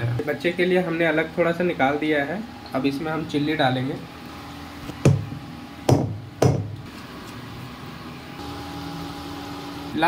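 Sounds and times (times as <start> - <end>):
sharp knocks: 5.0 - 5.3, 5.9 - 6.8.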